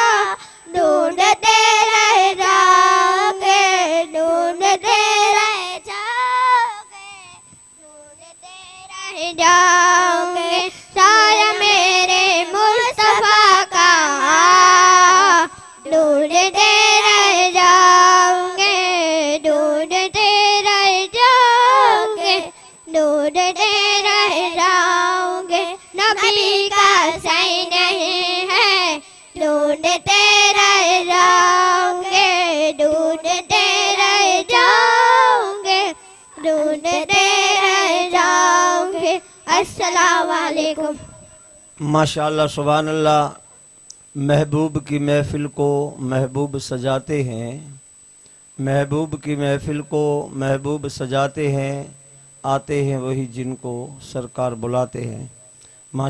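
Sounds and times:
girl singing devotional song: 0.0 - 41.7.

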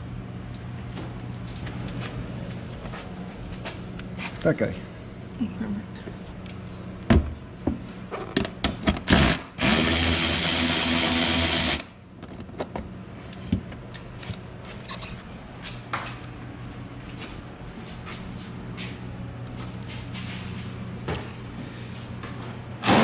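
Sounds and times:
electric ratchet motor whirring: 9.1 - 11.9.

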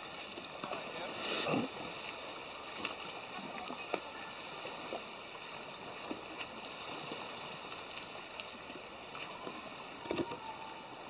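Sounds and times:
water rushing along boat hull: 0.0 - 11.0.

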